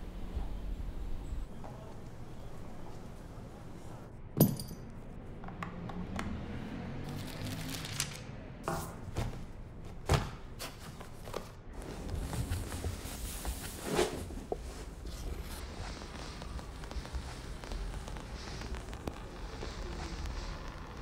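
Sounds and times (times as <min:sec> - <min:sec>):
tools knocking and clinking: 0:04.4 - 0:05.0.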